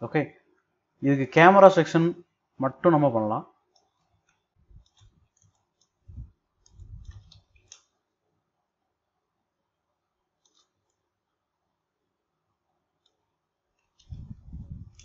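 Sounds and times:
mouse and keyboard clicks: 0:06.6 - 0:07.9, 0:10.4 - 0:11.0
soft low thumps: 0:14.1 - 0:15.0.

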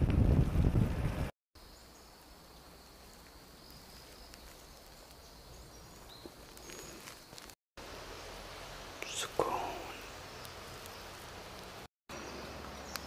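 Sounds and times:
bird chirps: 0:01.6 - 0:07.4
high insect drone: 0:01.6 - 0:11.8.

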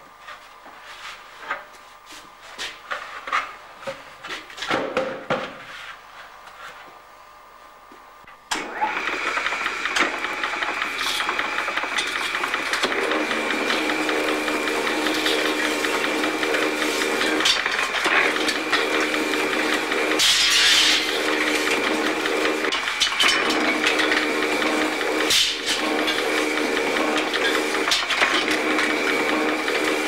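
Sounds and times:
flywheel engine and machinery running: 0:08.5 - 0:30.0.

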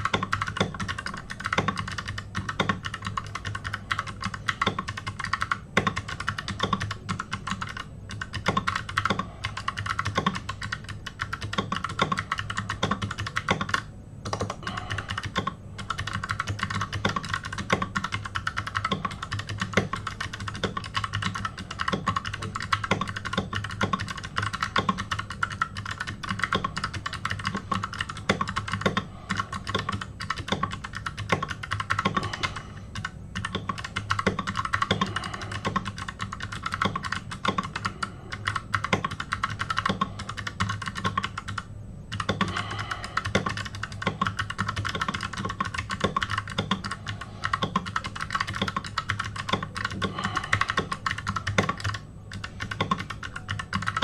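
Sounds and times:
fast keyboard typing: 0:00.0 - 0:54.0
steady low hum: 0:00.0 - 0:54.0.

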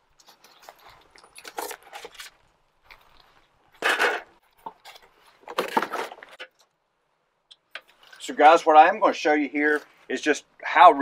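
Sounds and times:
cardboard rustling and scraping: 0:00.2 - 0:06.4.

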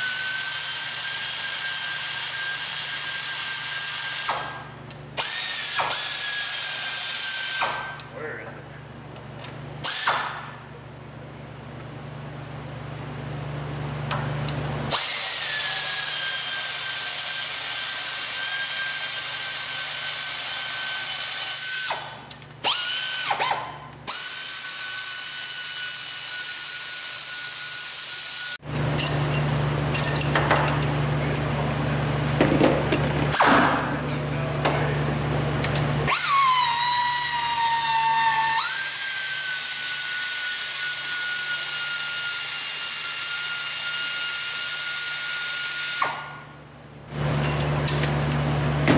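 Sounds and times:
power tool whining: 0:00.0 - 0:04.6, 0:05.2 - 0:08.1, 0:14.9 - 0:30.8, 0:35.6 - 0:46.5.

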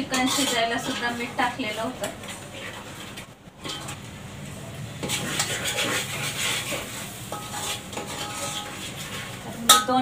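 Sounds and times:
metal ladle scraping a pot: 0:00.0 - 0:01.5, 0:02.2 - 0:04.0, 0:05.0 - 0:10.0
spices sizzling in oil: 0:05.0 - 0:10.0.

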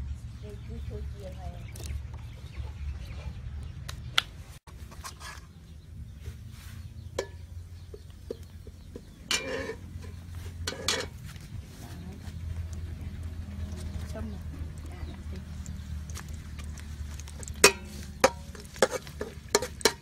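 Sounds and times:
steady low rumble: 0:05.6 - 0:20.0
metal ladle clinking on pot: 0:07.2 - 0:08.4, 0:09.3 - 0:11.2, 0:17.5 - 0:20.0
scraping and splashing: 0:08.4 - 0:20.0.

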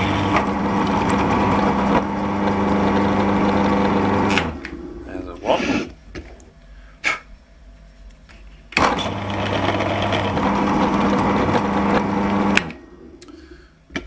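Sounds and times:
pillar drill boring hole: 0:00.0 - 0:04.6, 0:08.8 - 0:12.6.

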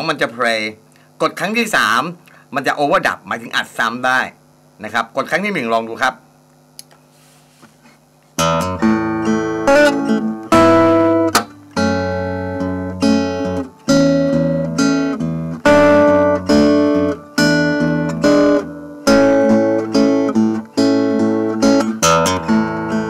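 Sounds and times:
acoustic guitar strumming chords: 0:08.4 - 0:23.0.

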